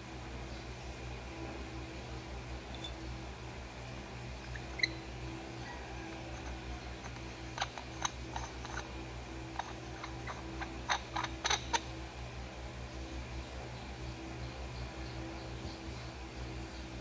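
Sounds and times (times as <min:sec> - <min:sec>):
steady low hum: 0:00.0 - 0:17.0
metal tubes clicking together: 0:06.4 - 0:08.9.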